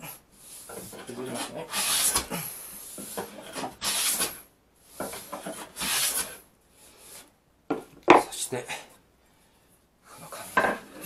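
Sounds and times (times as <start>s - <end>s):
hand plane shaving wood: 0.6s - 2.3s, 2.9s - 6.4s.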